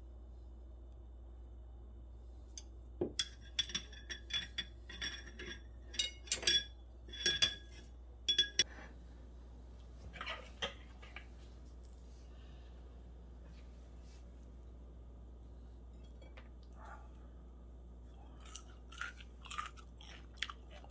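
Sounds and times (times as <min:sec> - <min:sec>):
knife and fork clinking: 0:03.2 - 0:08.6.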